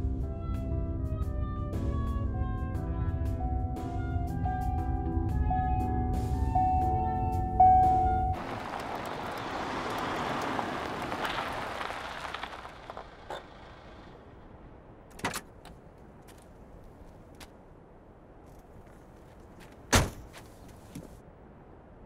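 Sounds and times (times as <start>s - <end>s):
car driving on paved road: 7.8s - 17.6s.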